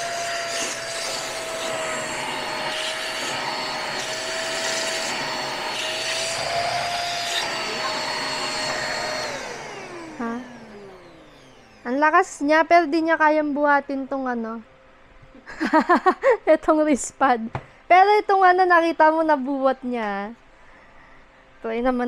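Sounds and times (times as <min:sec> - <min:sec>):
handheld vacuum cleaner whine: 0:00.0 - 0:12.0
vacuum motor spinning down: 0:00.0 - 0:12.1.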